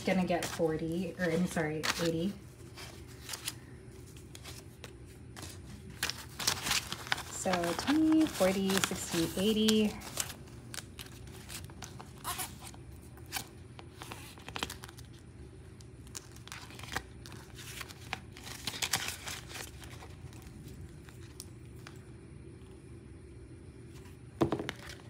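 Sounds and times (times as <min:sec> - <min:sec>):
plastic pouch crinkling: 0:00.0 - 0:22.0.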